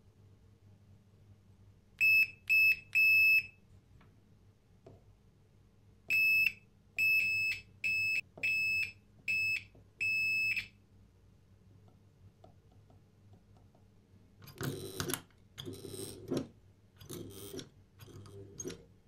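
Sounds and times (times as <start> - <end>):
multimeter continuity beeps: 2.0 - 3.6, 6.1 - 10.8.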